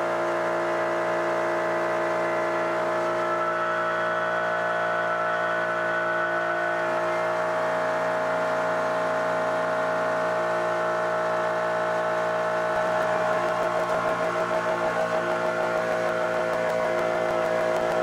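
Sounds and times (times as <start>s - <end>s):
milling machine spindle whine: 1.8s - 18.0s.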